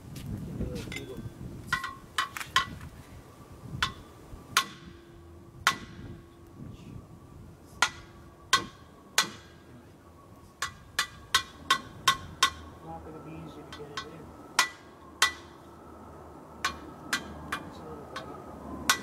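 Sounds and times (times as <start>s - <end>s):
hammer tapping on metal: 7.8s - 9.6s, 10.6s - 12.7s, 13.7s - 15.6s, 16.6s - 19.0s.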